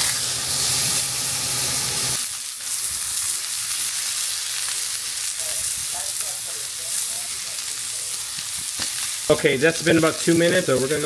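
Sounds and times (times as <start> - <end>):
steak sizzling in a skillet: 0.0 - 11.0.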